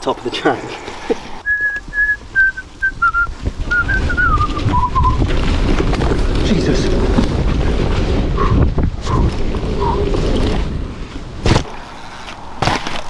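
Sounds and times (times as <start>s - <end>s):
tyres rumbling on dirt: 0.0s - 13.0s
wind buffeting microphone: 1.3s - 11.7s.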